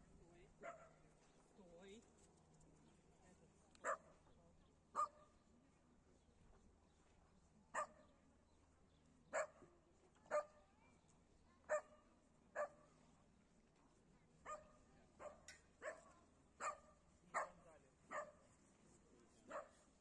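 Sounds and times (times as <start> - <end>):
dog barking: 0.6 - 1.0, 3.8 - 4.1, 5.0 - 5.3, 7.7 - 8.0, 9.3 - 9.6, 10.3 - 10.6, 11.7 - 12.0, 12.6 - 12.8, 14.4 - 18.4, 19.5 - 19.9.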